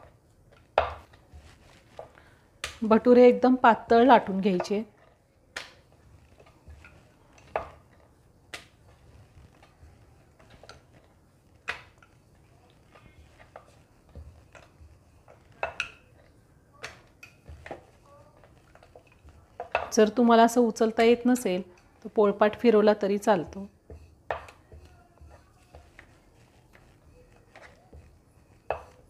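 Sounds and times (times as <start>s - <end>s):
rolling pin knocking on wooden board: 0.0s - 1.2s, 6.4s - 8.0s, 13.3s - 20.1s, 23.4s - 29.0s.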